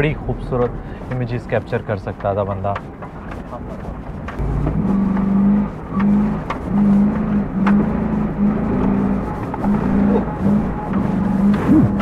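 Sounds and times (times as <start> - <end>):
engine revving hard: 4.4 - 12.0.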